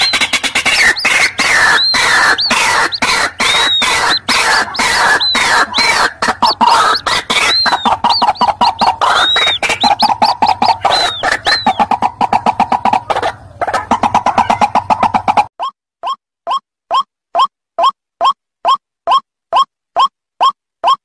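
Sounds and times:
raucous bird calls: 0:00.0 - 0:15.4
high thin chick peeps: 0:00.0 - 0:21.0.

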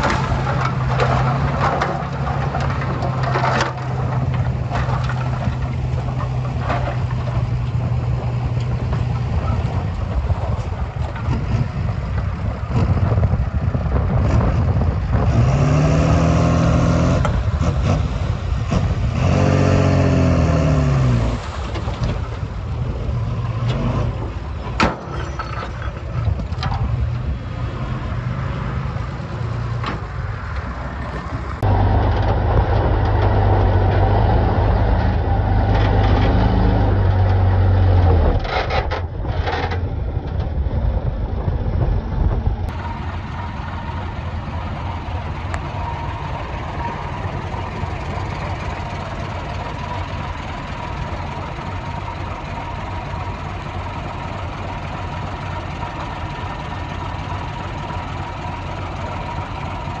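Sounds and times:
heavy diesel engine under load: 0:00.0 - 1:00.0.

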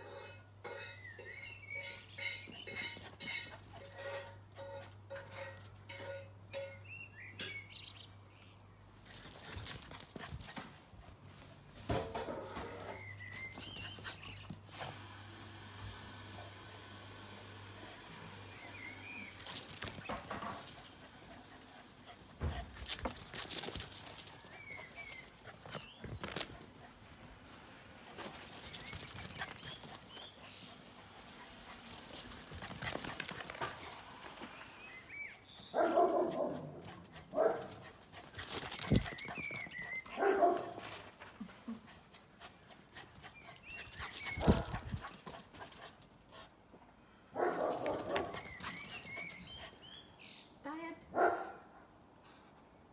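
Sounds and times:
puppy barking: 0:35.8 - 0:37.8, 0:40.2 - 0:40.8, 0:51.1 - 0:51.7.

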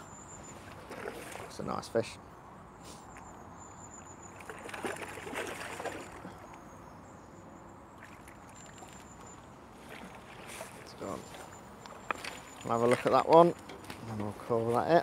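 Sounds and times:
fish splashing in water: 0:00.6 - 0:01.5, 0:04.3 - 0:06.5, 0:08.0 - 0:13.0.

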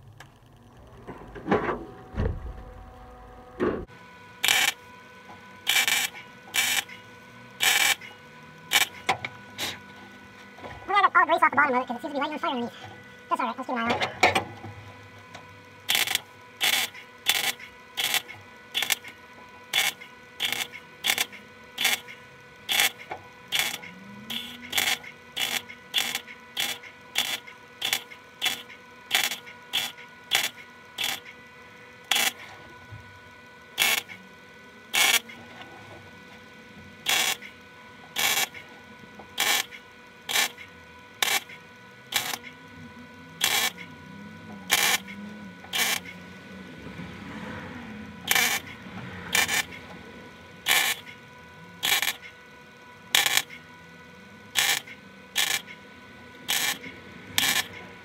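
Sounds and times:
short tack welding bursts: 0:05.7 - 0:07.0, 0:08.7 - 0:09.0, 0:15.9 - 0:19.1, 0:19.7 - 0:31.3, 0:32.1 - 0:32.4, 0:44.7 - 0:46.1, 0:48.3 - 0:48.7, 0:49.3 - 0:49.7, 0:50.7 - 0:51.1, 0:51.8 - 0:52.2, 0:54.6 - 0:54.8, 0:55.4 - 0:55.6, 0:56.5 - 0:56.8, 0:57.4 - 0:57.8.

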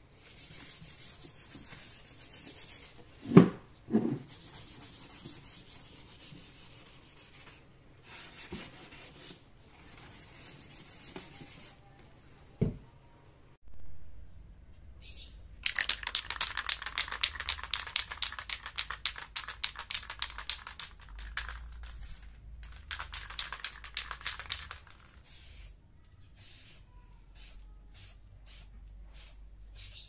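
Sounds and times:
spray can ball rattling: 0:15.6 - 0:25.7
spray paint hissing: 0:15.6 - 0:25.8, 0:26.4 - 0:26.8, 0:27.4 - 0:30.0.

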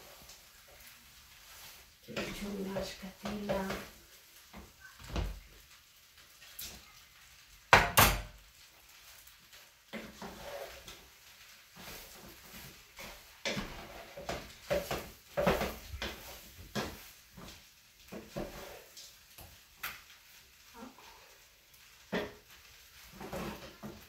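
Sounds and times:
wooden spoon knocking on a pan: 0:07.7 - 0:08.3, 0:13.4 - 0:17.5, 0:22.1 - 0:22.4.

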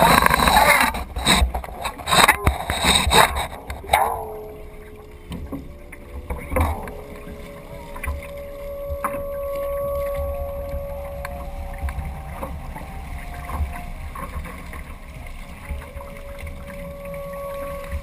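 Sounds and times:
water rushing along hull: 0:00.0 - 0:18.0
thin whistle-like tone: 0:03.6 - 0:18.0.

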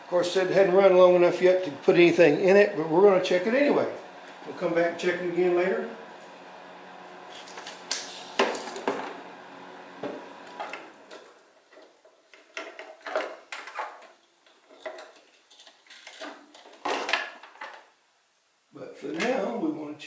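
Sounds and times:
steady hum: 0:00.0 - 0:11.7
test leads and cables clattering: 0:10.5 - 0:17.9.

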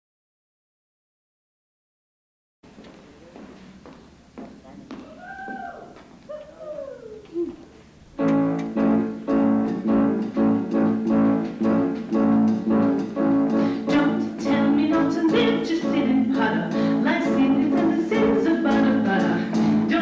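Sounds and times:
piano chords: 0:08.0 - 0:20.0
drums: 0:08.2 - 0:20.0.

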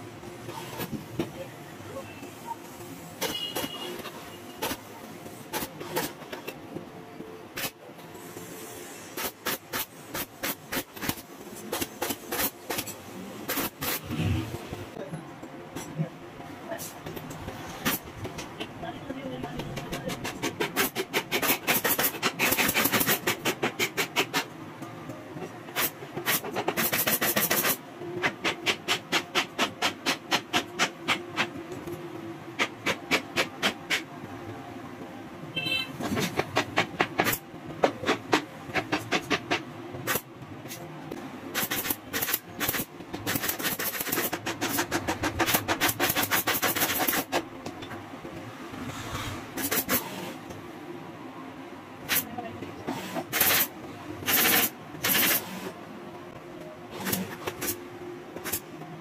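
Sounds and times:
steady background hum: 0:00.0 - 0:59.0
pneumatic staple gun firing: 0:20.8 - 0:23.2, 0:41.6 - 0:44.8, 0:53.0 - 0:55.6.

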